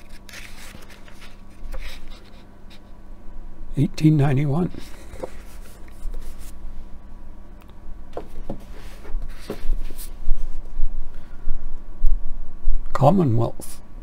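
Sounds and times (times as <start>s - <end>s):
books rustling: 0.0s - 2.4s, 4.6s - 6.6s, 8.2s - 10.6s.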